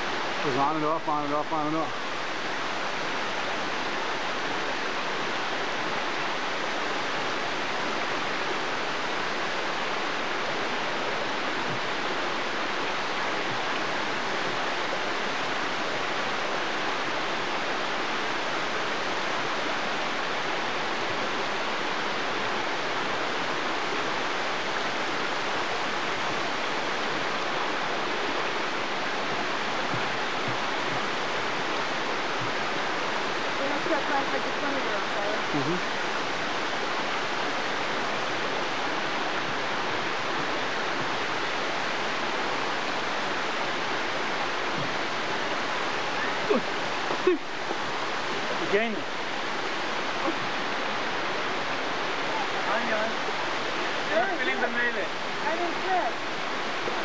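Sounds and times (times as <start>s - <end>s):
waterfall rushing over rocks: 0.0s - 57.0s.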